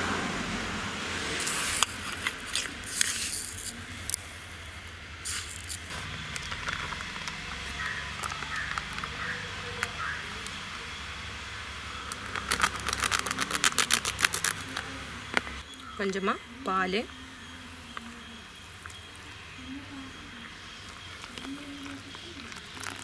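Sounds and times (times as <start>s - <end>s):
sugar sprinkling onto flour: 12.2s - 15.6s, 20.8s - 23.0s.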